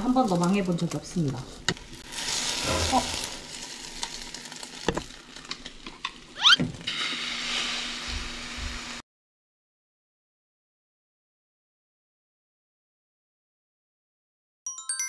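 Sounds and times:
egg sizzling in frying pan: 0.0 - 9.0
short rising squeak: 6.4 - 6.7.

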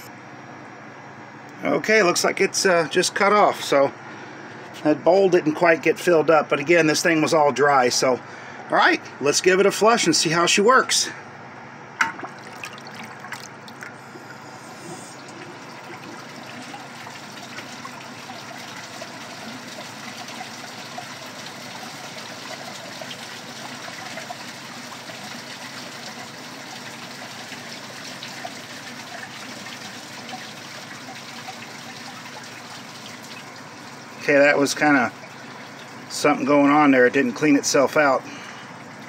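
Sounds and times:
water swirling in toilet bowl: 12.2 - 34.1.

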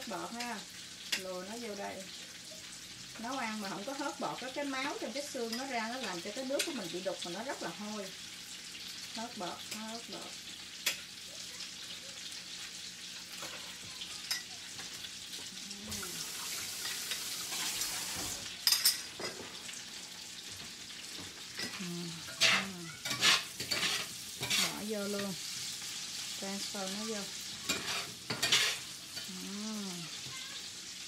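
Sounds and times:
vegetables sizzling in hot oil: 0.0 - 31.0
spatula scraping pan: 13.2 - 29.4.

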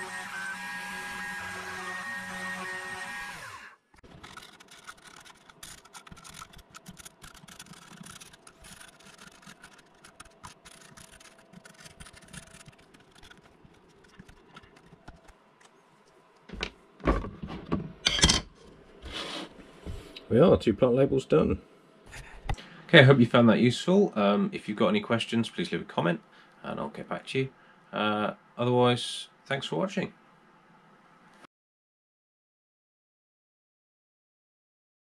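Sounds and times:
router engraving: 0.0 - 13.0
marker pen scratching: 4.1 - 15.3.

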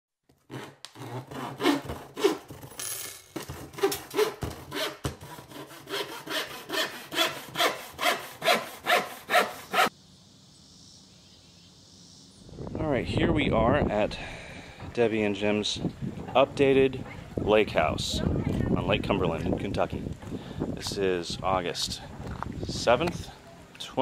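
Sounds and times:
faint high hiss: 9.9 - 13.0.

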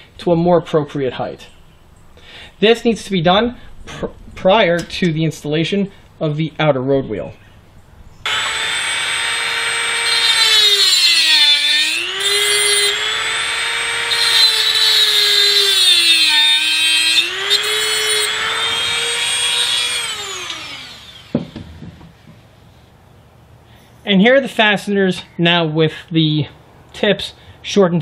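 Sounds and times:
rotary tool grinding metal: 8.3 - 21.3.

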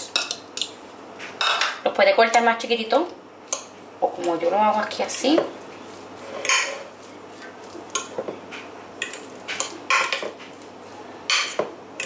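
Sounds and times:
metal utensil scraping glass dish: 6.2 - 6.9.

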